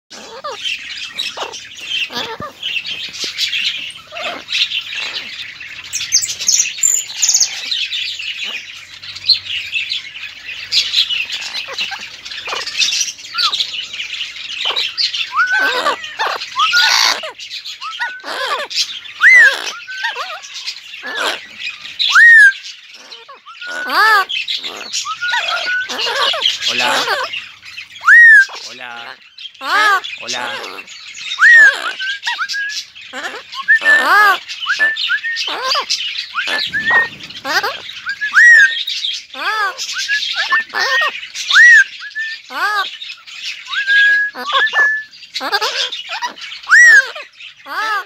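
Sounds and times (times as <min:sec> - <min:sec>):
parrots squawking: 0:00.1 - 0:48.0
twittering chatter of birds: 0:00.1 - 0:48.0.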